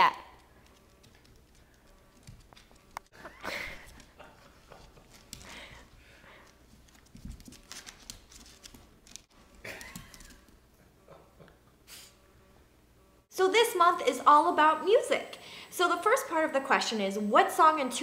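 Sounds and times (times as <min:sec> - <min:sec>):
dog claws clicking on wooden floor: 0:00.4 - 0:03.0, 0:06.8 - 0:09.3.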